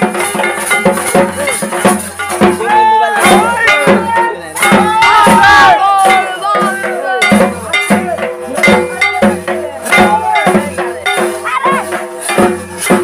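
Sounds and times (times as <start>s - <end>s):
percussion beat: 0.0s - 13.0s.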